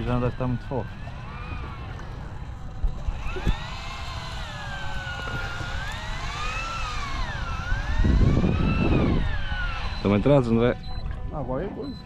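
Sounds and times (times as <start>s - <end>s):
electric fishing reel motor whining: 0.0s - 11.8s.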